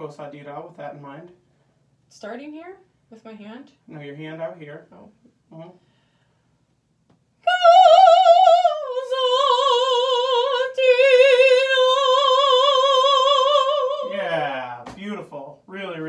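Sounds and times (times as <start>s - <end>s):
woman singing operatically: 7.4s - 14.1s.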